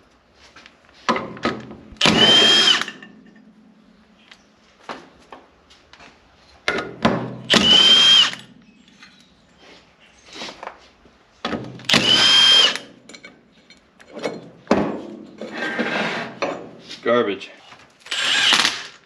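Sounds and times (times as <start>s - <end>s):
impact tool rattling with motor whine: 2.0s - 3.1s, 7.5s - 8.5s, 11.8s - 12.9s, 18.1s - 19.0s.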